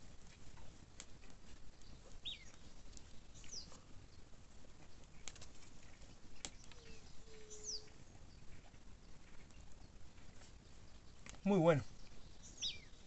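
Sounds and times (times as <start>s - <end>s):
bird whistle: 6.8s - 7.9s, 12.6s - 13.0s.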